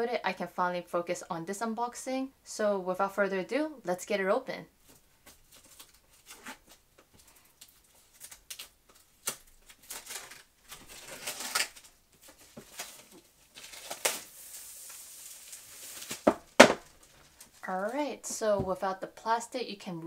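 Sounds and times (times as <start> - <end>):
plastic shrink wrap crinkling: 4.8 - 18.5.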